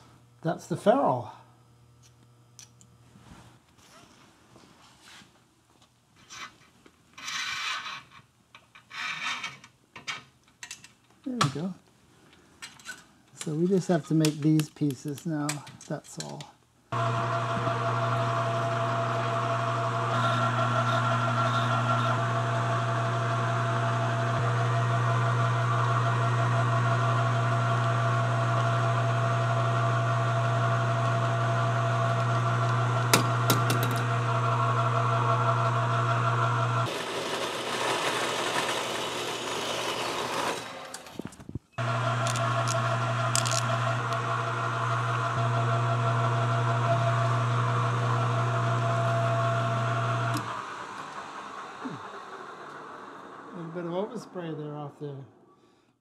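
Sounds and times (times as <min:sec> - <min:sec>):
machine tool motor humming: 0:16.9 - 0:41.1, 0:41.8 - 0:53.9.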